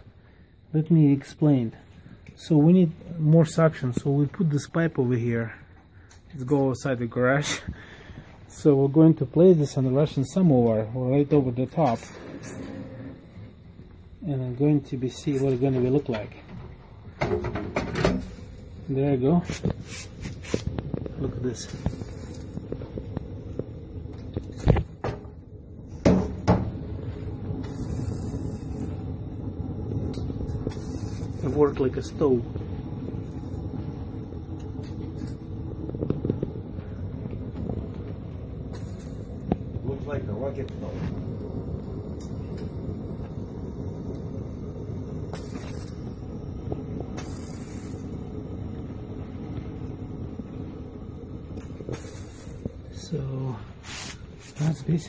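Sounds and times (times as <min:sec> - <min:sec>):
wood fire rushing rumble: 0:18.2 - 0:55.0
sharp knocks: 0:26.0 - 0:26.7.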